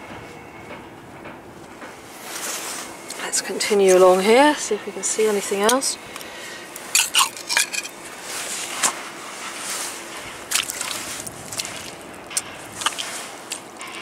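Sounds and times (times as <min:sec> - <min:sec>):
trowel clinking on pebbles: 0:06.9 - 0:08.0
soft scraping in mud: 0:08.1 - 0:12.1.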